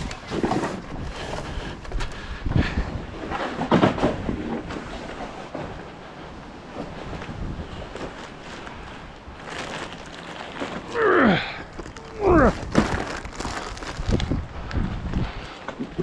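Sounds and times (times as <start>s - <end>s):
plastic bags crinkling: 7.7s - 14.8s
person grunting: 10.8s - 12.7s.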